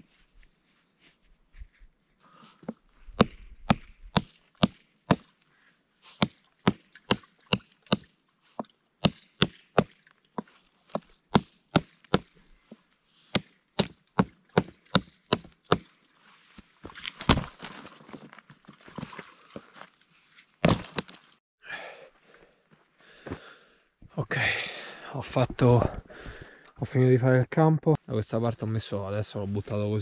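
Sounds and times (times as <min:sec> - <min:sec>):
blade chopping dry branch: 0:17.1 - 0:17.8.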